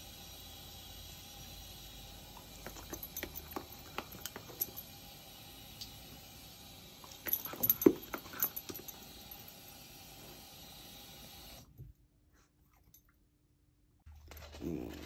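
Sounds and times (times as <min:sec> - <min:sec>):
collar tags jingling: 0:02.4 - 0:05.0, 0:07.0 - 0:09.6
dog claws clicking on tile: 0:02.6 - 0:04.8.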